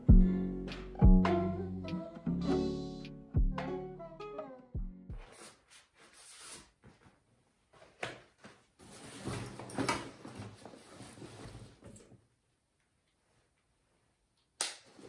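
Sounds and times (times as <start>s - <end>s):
rustling of handled objects: 6.0s - 12.2s.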